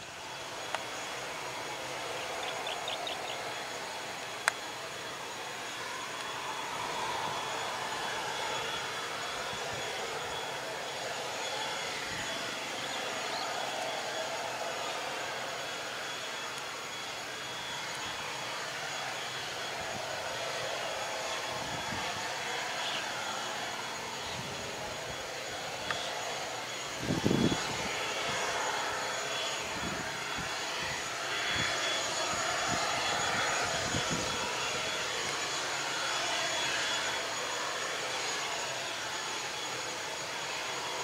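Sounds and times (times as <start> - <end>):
jet engines at taxi power: 0.0 - 41.0.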